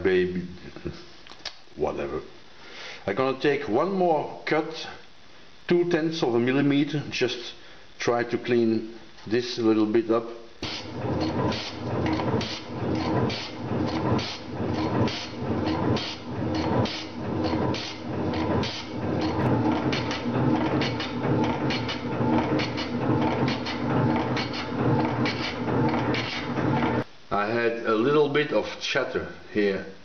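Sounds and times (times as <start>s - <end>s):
metal shaper clattering: 10.6s - 27.0s.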